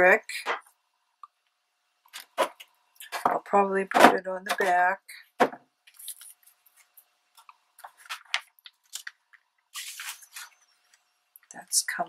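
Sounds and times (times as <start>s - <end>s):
paper rustling: 9.7s - 10.6s.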